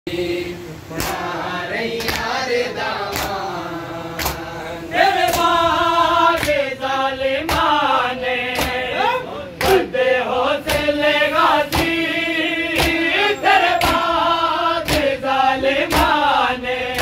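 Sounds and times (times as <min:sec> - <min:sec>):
men chanting a lament: 0:00.1 - 0:17.0
chest-beating slaps: 0:01.0 - 0:01.2, 0:11.7 - 0:12.0, 0:12.8 - 0:13.1, 0:14.8 - 0:15.1.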